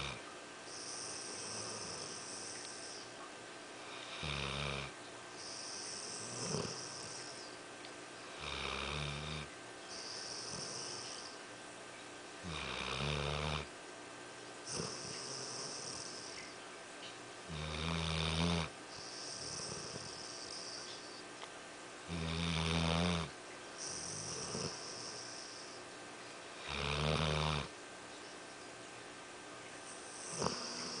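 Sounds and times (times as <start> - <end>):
dog snoring: 0.0 - 3.1, 3.8 - 7.6, 8.3 - 11.4, 12.4 - 13.7, 14.6 - 16.6, 17.5 - 21.2, 22.1 - 25.8, 26.6 - 27.7, 29.9 - 31.0.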